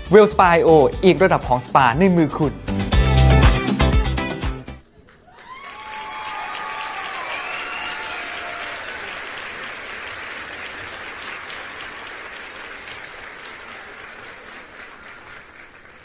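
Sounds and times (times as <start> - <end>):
crowd applause: 4.9 - 16.0.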